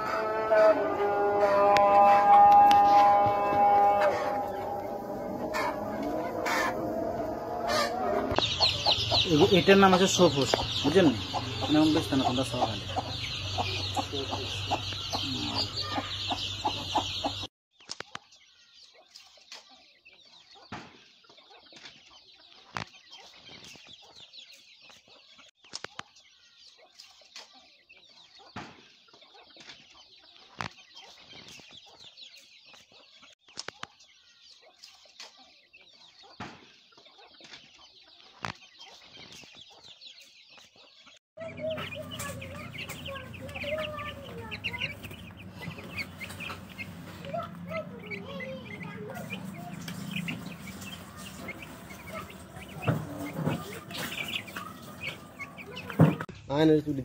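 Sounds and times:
chicks cheeping: 0.0 - 17.5, 18.3 - 57.0
hen clucking: 1.4 - 17.5, 41.4 - 56.3.

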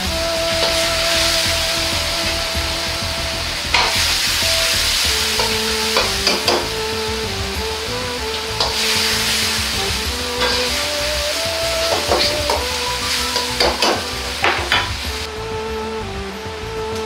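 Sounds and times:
sauce sizzling in wok: 0.0 - 15.3
metal ladle scraping wok: 0.5 - 15.3
ladle knocking against wok: 5.4 - 6.7, 11.9 - 12.7, 13.4 - 15.1.

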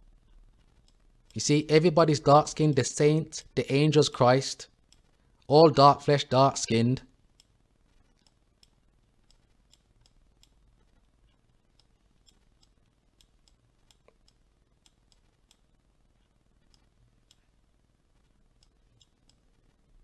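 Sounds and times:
computer mouse clicks: 7.4 - 11.1.

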